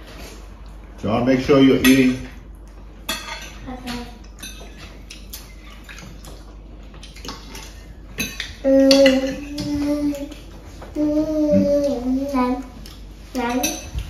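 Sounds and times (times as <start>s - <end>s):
forks clinking on plates: 1.8s - 2.3s, 3.0s - 10.4s, 13.3s - 14.0s.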